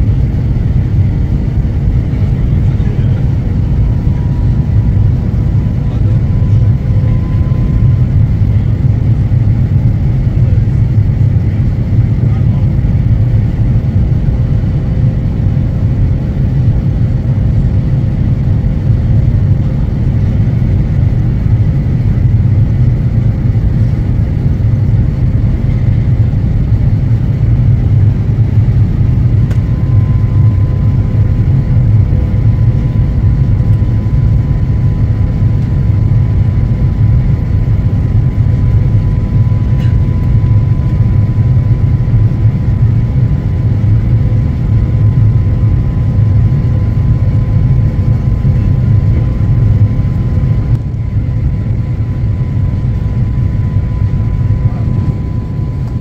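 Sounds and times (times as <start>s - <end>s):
jet engine rumble in cabin: 0.0s - 56.0s
faint thin whine: 2.2s - 8.9s, 44.5s - 56.0s.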